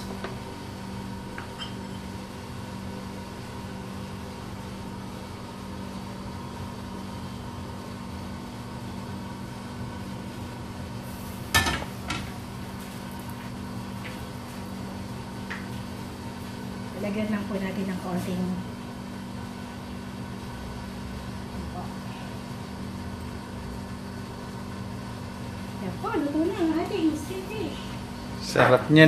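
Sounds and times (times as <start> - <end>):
kitchen appliance humming: 0.0 - 29.0
frying pan clanking down: 11.5 - 12.3.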